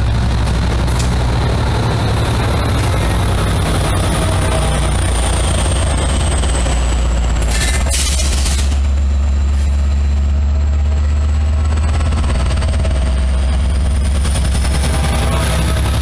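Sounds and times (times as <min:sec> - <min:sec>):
diesel locomotive engine rumble: 0:00.0 - 0:16.0.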